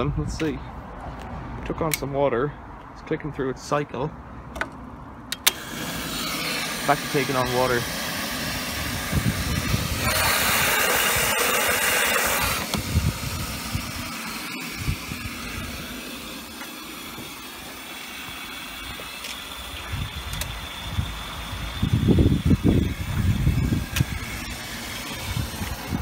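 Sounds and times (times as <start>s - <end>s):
water hissing into washing machine: 5.5s - 26.0s.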